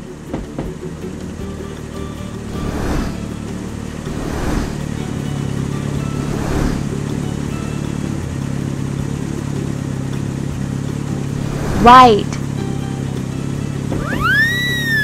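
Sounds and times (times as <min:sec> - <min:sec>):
toy car motor hum: 0:00.8 - 0:15.0
short whooshes: 0:02.5 - 0:03.4, 0:04.0 - 0:05.0, 0:06.0 - 0:07.1, 0:11.3 - 0:12.4.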